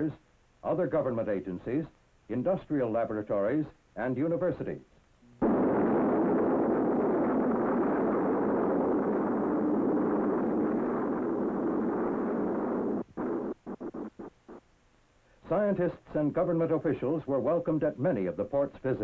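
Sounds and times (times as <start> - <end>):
rocket motor roaring: 5.4 - 14.2.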